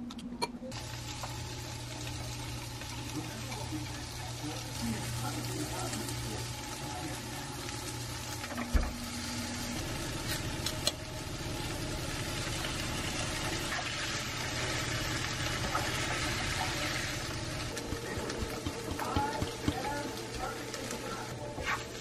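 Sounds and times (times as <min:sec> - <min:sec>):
food sizzling in a frying pan: 0:00.7 - 0:22.0
wooden utensils stirring: 0:17.6 - 0:22.0.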